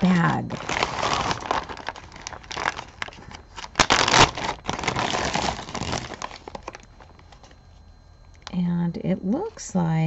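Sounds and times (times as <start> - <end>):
bag crinkling: 0.0 - 7.6.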